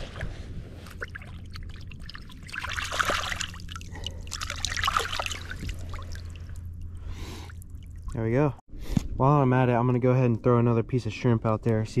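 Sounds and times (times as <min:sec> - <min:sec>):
water splashing and trickling: 0:00.0 - 0:08.6.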